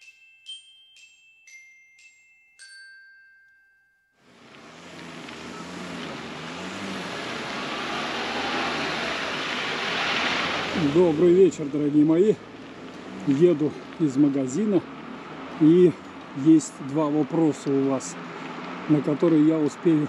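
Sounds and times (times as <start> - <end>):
bell-like chime jingle: 0.0 - 4.2.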